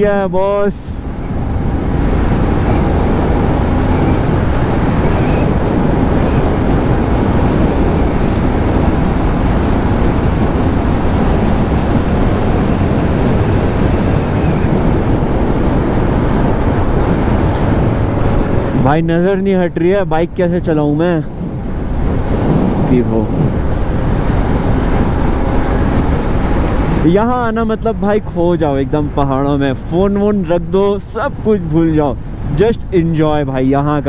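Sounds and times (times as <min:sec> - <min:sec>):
wind rushing over microphone: 0:00.0 - 0:34.0
tyres on wet road: 0:00.6 - 0:19.0.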